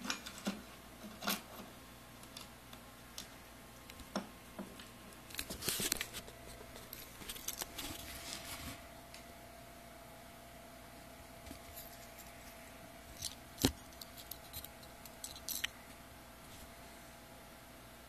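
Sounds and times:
plastic bag rustling: 0:05.3 - 0:08.9
metal parts clinking: 0:13.2 - 0:15.7.

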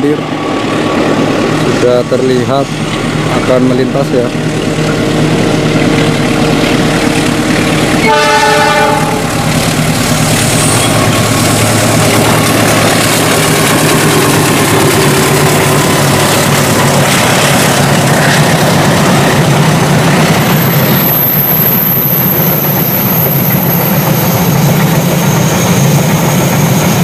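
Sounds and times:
diesel engine running loud: 0:00.0 - 0:24.6
train wheels clattering on rails: 0:00.0 - 0:27.0
train horn blast: 0:08.0 - 0:09.4.

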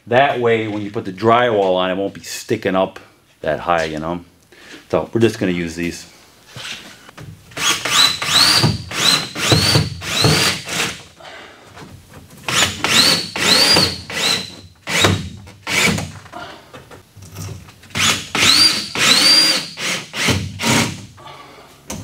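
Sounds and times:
power drill whining: 0:07.6 - 0:10.9, 0:12.5 - 0:15.1, 0:18.0 - 0:20.8.

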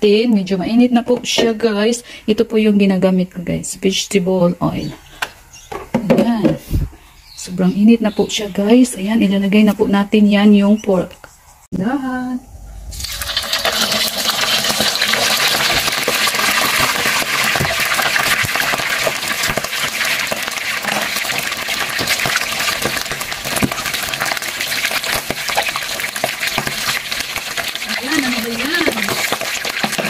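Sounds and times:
pork sizzling in hot oil: 0:12.9 - 0:30.0.

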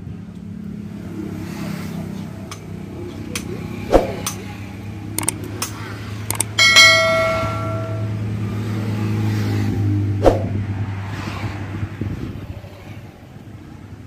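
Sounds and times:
mouse clicks: 0:05.2 - 0:05.5
bell ding: 0:06.4 - 0:08.4.

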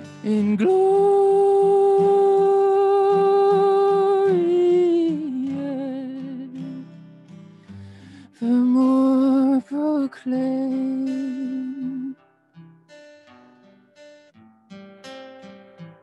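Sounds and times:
person singing: 0:00.0 - 0:07.2, 0:07.8 - 0:12.2
acoustic guitar strumming: 0:00.0 - 0:16.0.

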